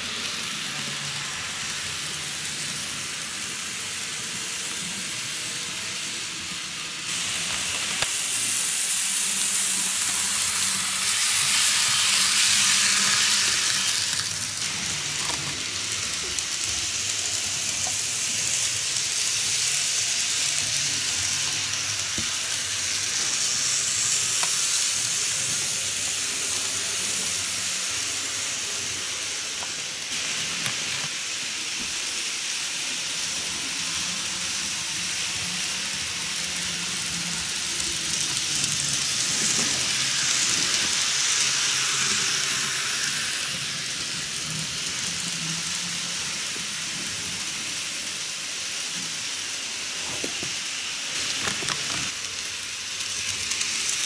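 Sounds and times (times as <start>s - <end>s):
model trains running on track: 0.0s - 54.0s.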